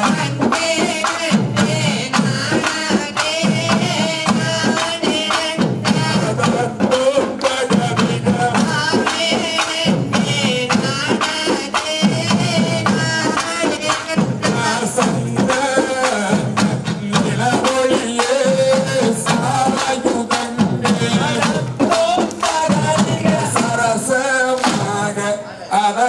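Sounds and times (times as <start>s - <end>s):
quick drum rhythm: 0.0s - 25.2s
man singing: 0.0s - 26.0s.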